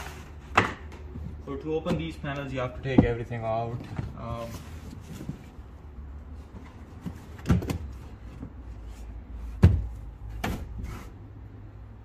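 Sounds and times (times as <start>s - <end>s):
carpeted panel thumping: 0.6s - 4.0s, 9.6s - 10.8s.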